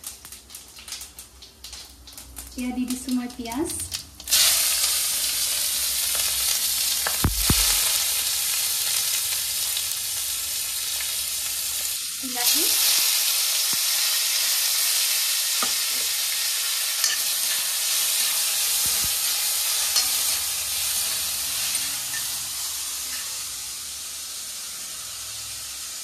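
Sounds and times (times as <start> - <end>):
vegetables sizzling in hot oil: 0.0 - 26.0
metal spoon clinking on pan: 17.0 - 17.7.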